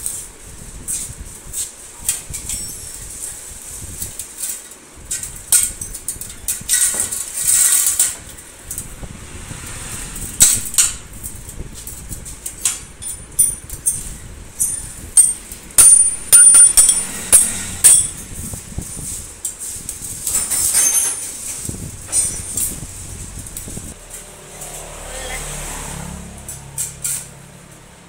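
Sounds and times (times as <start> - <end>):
metal scraping: 4.3 - 25.0
steel tubes knocking and clinking: 10.4 - 18.6, 19.4 - 23.7.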